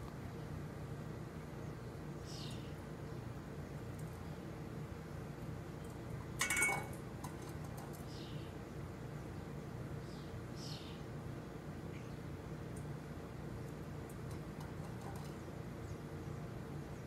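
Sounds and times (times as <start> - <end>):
bird chirping: 1.6 - 2.8, 9.4 - 11.0
metal bowl clanking: 6.4 - 7.5.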